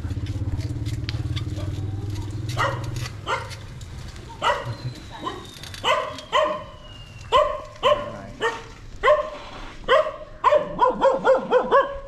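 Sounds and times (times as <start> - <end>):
dog barking: 2.5 - 3.6, 4.4 - 12.0.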